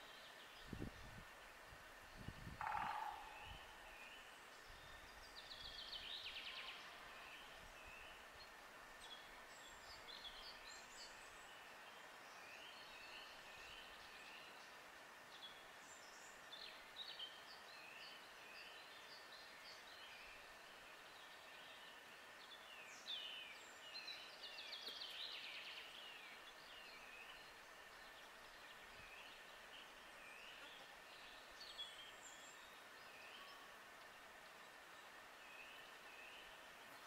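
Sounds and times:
faint steady hiss: 0:00.0 - 0:37.0
birds chirping and trilling: 0:02.2 - 0:03.7.

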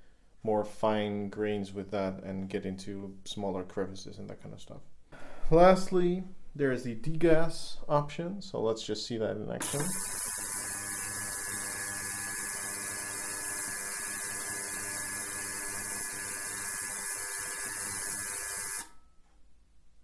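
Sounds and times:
ultrasonic cleaner hissing: 0:09.6 - 0:18.9.

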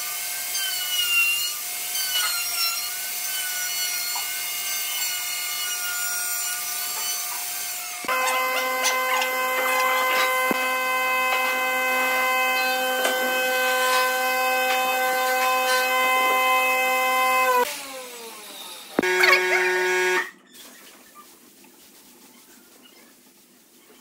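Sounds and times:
electric router whine: 0:07.2 - 0:20.4
short machine whine: 0:08.1 - 0:17.6, 0:19.0 - 0:20.4.

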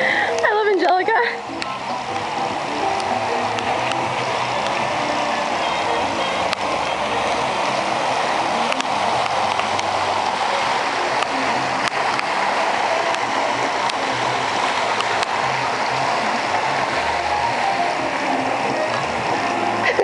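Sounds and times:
fountain water splashing: 0:00.0 - 0:20.0.

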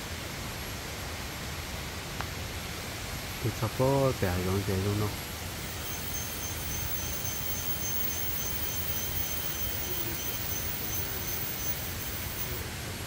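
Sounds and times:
high insect drone: 0:00.0 - 0:13.0
steady forest hiss: 0:00.0 - 0:13.0.

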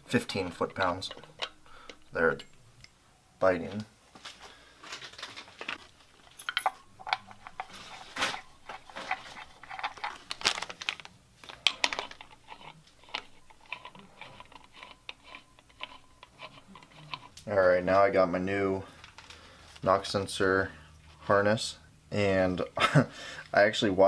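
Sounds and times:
tool clatter: 0:05.6 - 0:10.2.

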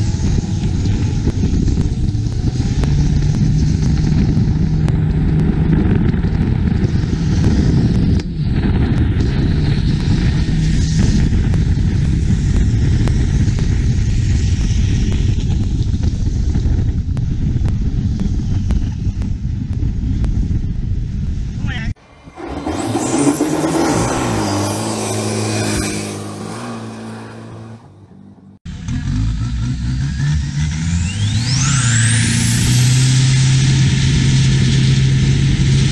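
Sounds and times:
wind and spray noise: 0:00.0 - 0:27.7
boat engines droning: 0:22.0 - 0:28.6.

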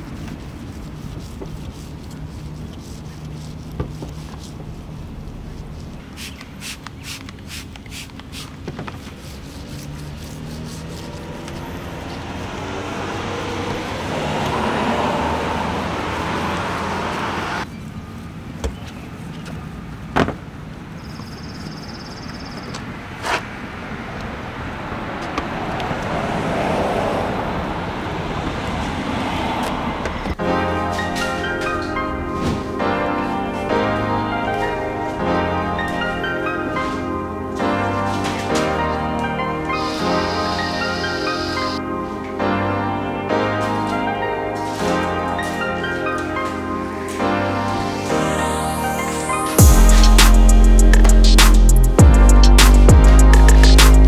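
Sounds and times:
water spray hissing: 0:00.0 - 0:13.5, 0:39.7 - 0:41.8.

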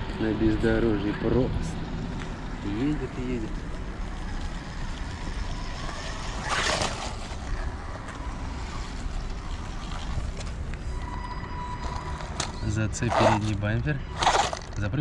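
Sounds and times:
toy car electric motor running: 0:04.1 - 0:14.8.

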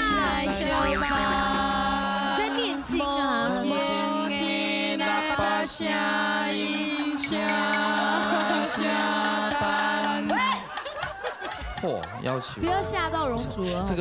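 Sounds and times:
women singing a slow ballad: 0:00.0 - 0:10.7.

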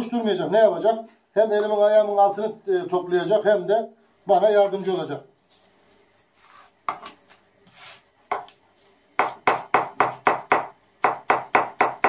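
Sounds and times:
knife chopping on cutting board: 0:09.2 - 0:12.0.

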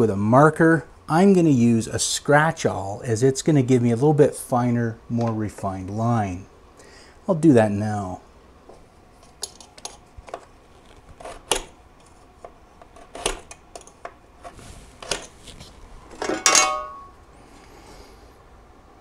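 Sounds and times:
metal ring: 0:16.1 - 0:17.2.

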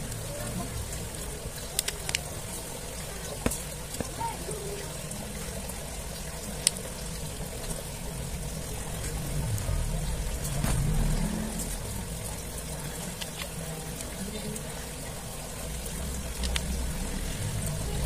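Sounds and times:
background hiss and hum: 0:00.0 - 0:18.0
small parts clicking: 0:01.6 - 0:02.3, 0:16.2 - 0:16.9
low rumble: 0:08.1 - 0:12.9.

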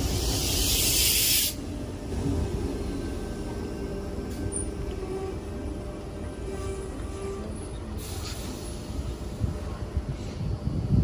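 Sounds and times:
electric train rumbling: 0:00.0 - 0:11.0
wind buffeting microphone: 0:09.0 - 0:11.0.

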